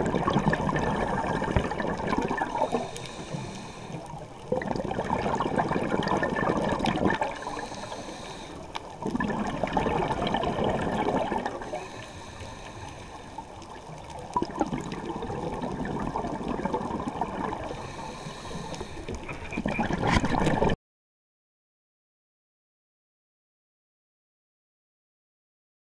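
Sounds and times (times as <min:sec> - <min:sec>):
underwater exhaust bubbles gurgling: 0:00.0 - 0:20.8.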